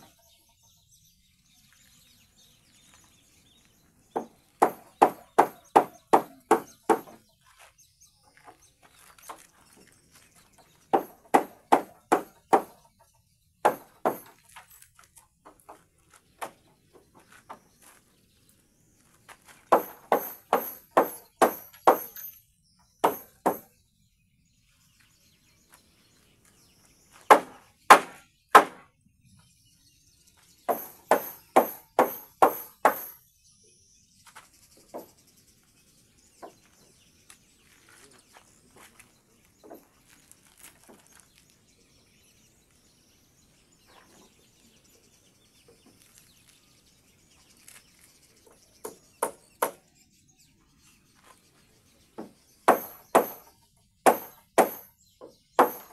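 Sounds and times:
hammer driving nails into wood: 0:04.2 - 0:07.2, 0:10.9 - 0:12.8, 0:13.6 - 0:14.4, 0:19.7 - 0:22.2, 0:23.0 - 0:23.7, 0:27.3 - 0:28.9, 0:30.7 - 0:33.2, 0:52.2 - 0:53.5, 0:54.1 - 0:54.9, 0:55.6 - 0:55.9.

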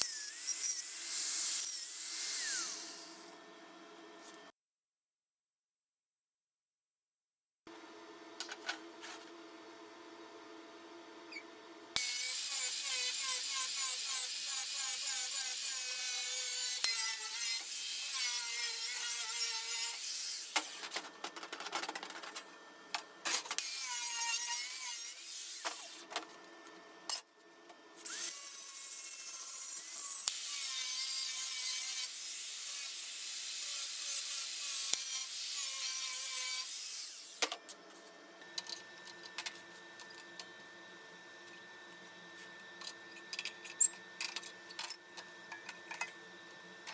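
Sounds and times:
angle grinder cutting steel: 0:00.0 - 0:03.4, 0:12.0 - 0:20.8, 0:23.6 - 0:26.0, 0:28.0 - 0:37.4.

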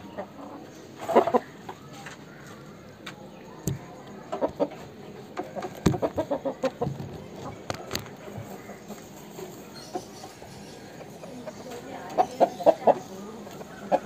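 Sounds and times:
chicken clucking: 0:00.0 - 0:14.0
sharp knocks: 0:05.8 - 0:07.0.

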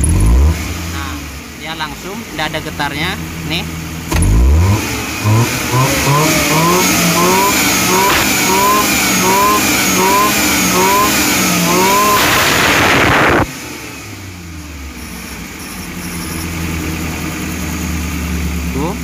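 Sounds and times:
car engine revving: 0:00.0 - 0:19.0
engine idling: 0:14.4 - 0:19.0.

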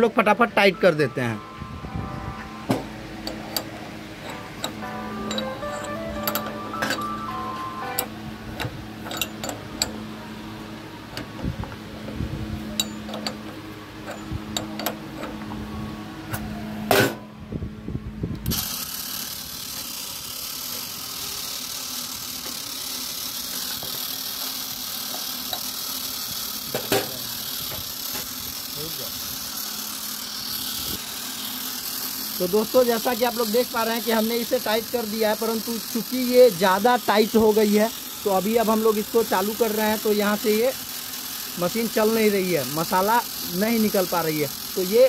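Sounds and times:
low machine hum: 0:00.0 - 0:31.9
metal clinks and knocks: 0:03.2 - 0:07.2, 0:08.0 - 0:10.0, 0:12.7 - 0:15.4.

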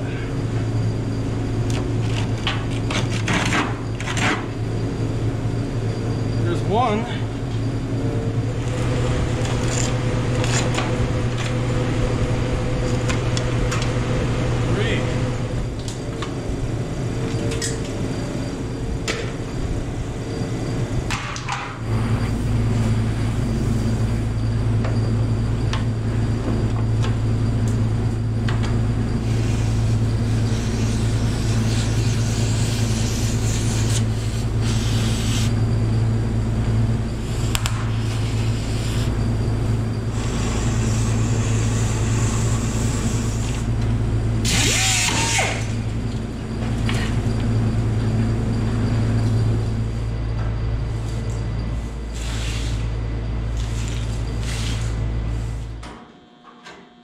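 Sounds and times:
steady machine hum: 0:00.0 - 0:57.0
cutting torch hissing: 0:29.2 - 0:35.6, 0:37.2 - 0:39.3, 0:39.9 - 0:43.7, 0:44.4 - 0:45.8.

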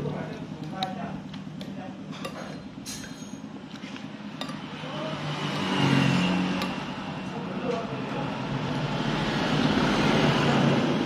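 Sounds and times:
road traffic hum: 0:00.0 - 0:11.0
cutlery clinking on plate: 0:02.1 - 0:03.4
vehicle passing: 0:04.6 - 0:11.0.

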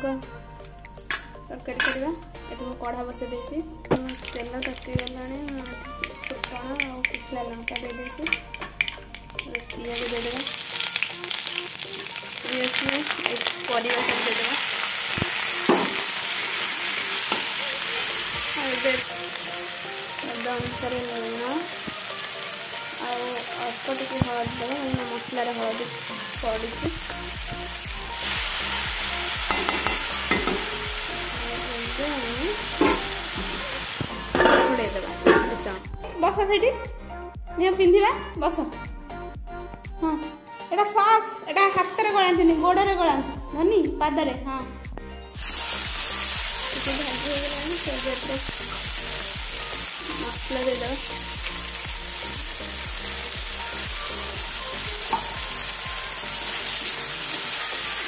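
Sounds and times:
vegetables sizzling in oil: 0:04.0 - 0:35.8, 0:45.4 - 0:58.0
spatula knocking on pan: 0:29.5 - 0:30.7, 0:32.8 - 0:33.6
metal spatula scraping pan: 0:32.8 - 0:33.6, 0:34.3 - 0:35.8.

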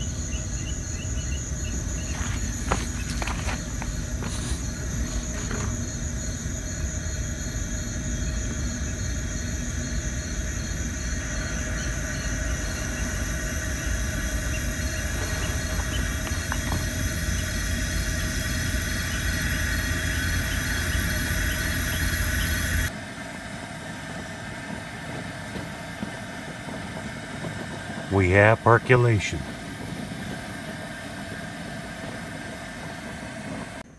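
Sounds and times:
camp stove burner hiss: 0:00.0 - 0:33.9
insects droning: 0:00.0 - 0:33.9
pulsing insect chirp: 0:00.0 - 0:33.9.

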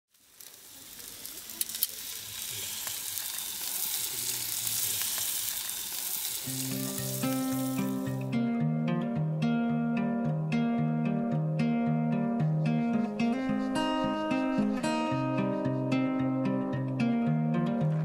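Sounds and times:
steaks sizzling on a grill: 0:00.1 - 0:08.3
plucked-string music: 0:06.4 - 0:18.0.

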